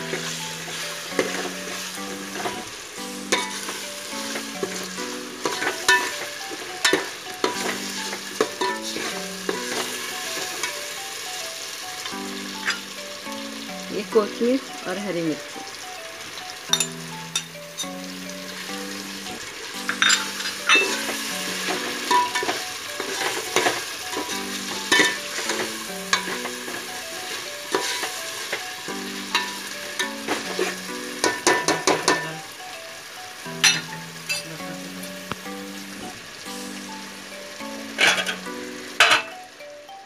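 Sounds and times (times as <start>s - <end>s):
oil sizzling in a pot: 0.0s - 40.0s
soft background music: 0.0s - 40.0s
spatula scraping a metal pot: 5.4s - 6.2s, 27.7s - 28.1s.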